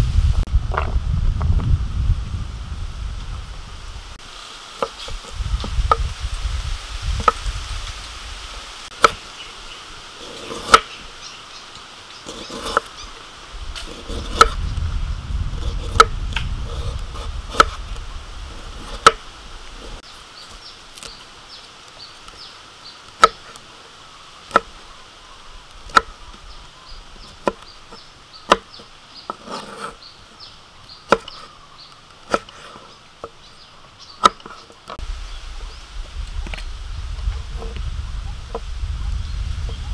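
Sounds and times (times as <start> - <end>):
knife chopping on wooden board: 10.2 - 10.9, 28.5 - 28.7.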